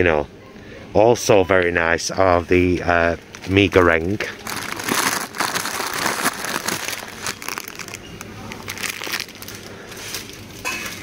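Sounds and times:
plastic packets crinkling: 0:03.3 - 0:10.4.

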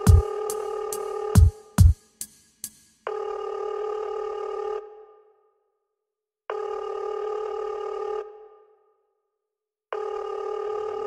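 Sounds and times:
telephone ringing in electronic music: 0:00.0 - 0:01.5.

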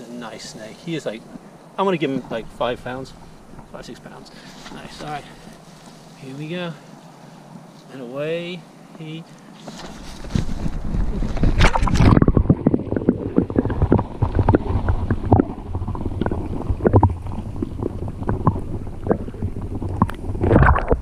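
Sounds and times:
underwater rumbling and gurgling: 0:01.2 - 0:04.2, 0:10.2 - 0:21.0
water splashing: 0:10.0 - 0:21.0
underwater knocks: 0:10.7 - 0:21.0.

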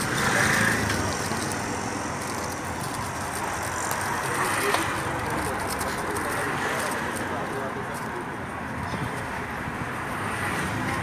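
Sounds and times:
passing road traffic: 0:00.0 - 0:11.0.

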